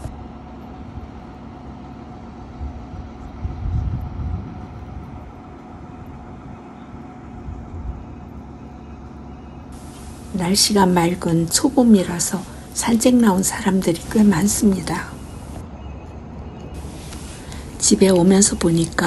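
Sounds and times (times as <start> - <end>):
concrete pump engine humming: 0.0 - 15.7, 16.7 - 19.0.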